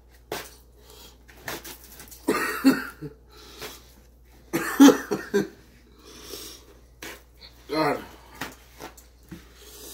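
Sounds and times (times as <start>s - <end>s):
man coughing: 2.2s - 3.2s, 4.5s - 5.6s.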